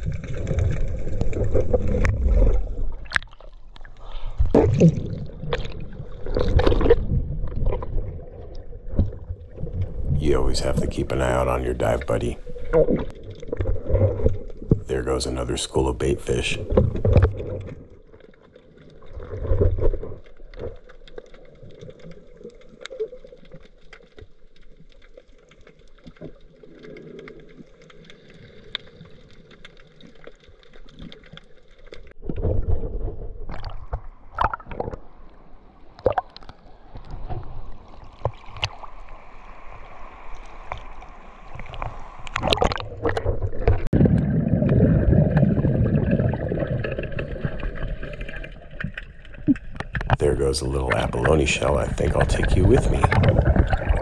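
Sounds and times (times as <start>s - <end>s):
water splashing: 0.0s - 23.8s, 35.9s - 54.0s
water sloshing and gurgling: 0.0s - 54.0s.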